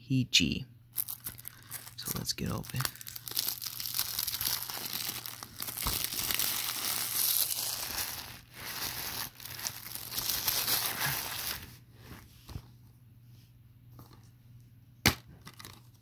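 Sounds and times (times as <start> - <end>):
plastic wrap crinkling: 1.0 - 12.2.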